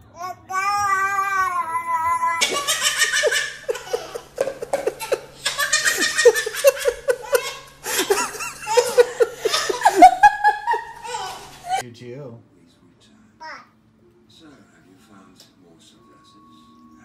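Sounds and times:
baby belly-laughing: 0:00.2 - 0:11.8.

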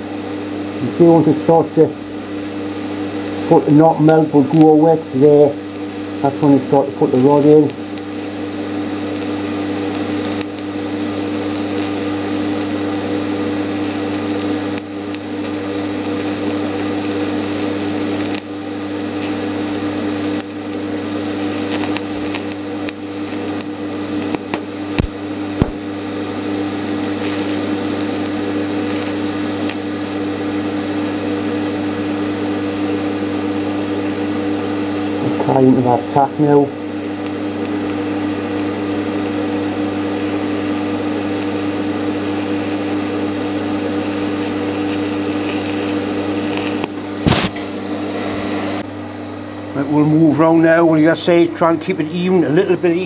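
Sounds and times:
welding arc buzzing and hissing: 0:00.0 - 0:53.0.

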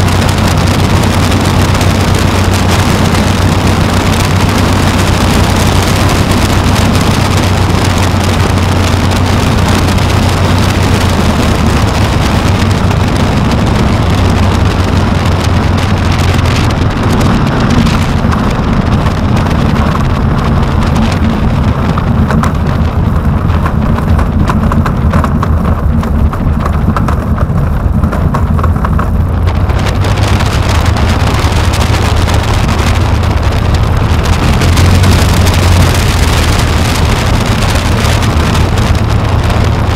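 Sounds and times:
light aircraft engine running: 0:00.0 - 0:39.9
wheels rattling over turf: 0:00.0 - 0:39.9
wind on microphone: 0:00.0 - 0:39.9.

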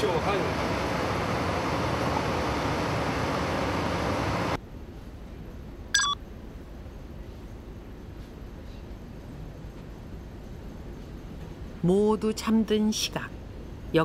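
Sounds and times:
loud machinery noise: 0:00.0 - 0:04.6
short electronic beep: 0:06.0 - 0:06.2.

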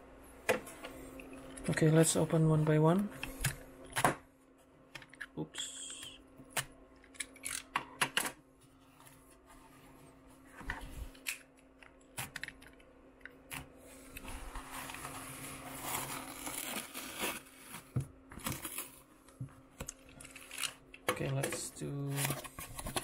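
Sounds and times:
cardboard rustling and tearing: 0:14.4 - 0:19.0.

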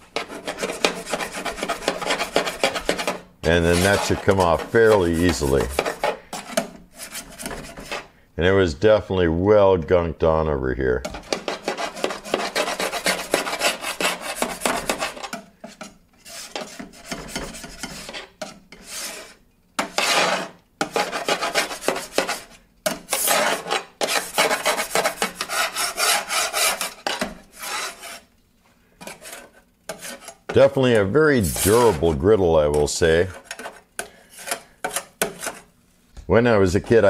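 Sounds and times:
scrubbing strokes on metal griddle: 0:00.0 - 0:08.1, 0:11.4 - 0:28.3.

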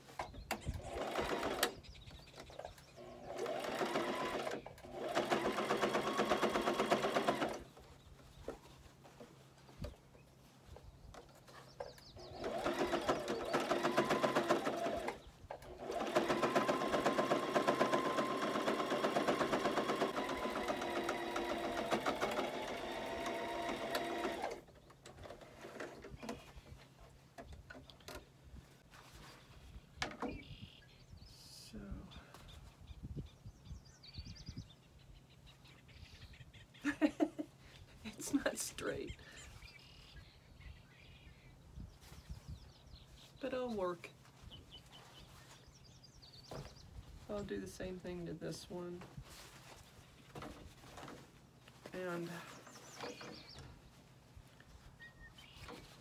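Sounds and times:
electric sewing machine stitching: 0:00.8 - 0:01.8, 0:03.0 - 0:07.7, 0:12.2 - 0:24.7.

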